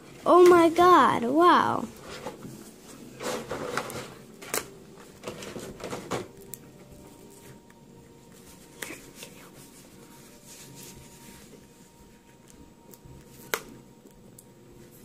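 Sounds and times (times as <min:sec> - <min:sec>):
plastic packaging rustling: 0:01.9 - 0:12.0.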